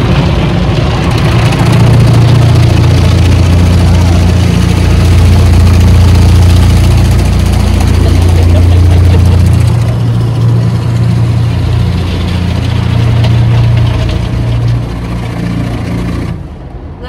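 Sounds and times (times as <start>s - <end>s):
low machinery hum: 0.0s - 17.0s.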